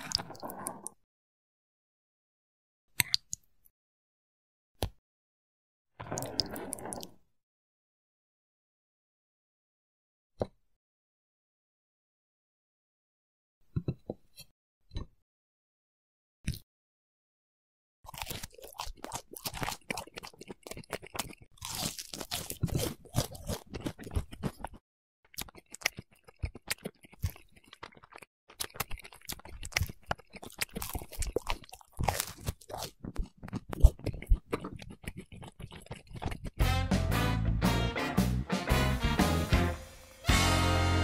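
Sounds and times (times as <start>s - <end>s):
chewing crisp food: 0.0s - 0.9s, 18.1s - 36.6s.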